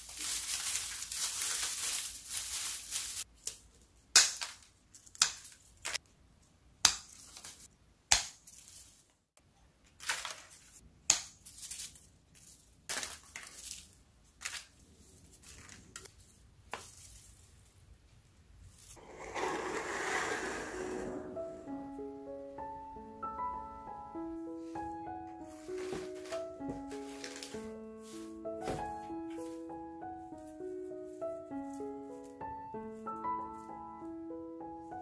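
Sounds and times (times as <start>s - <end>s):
leaves rustling: 0.0s - 3.3s, 25.4s - 32.4s.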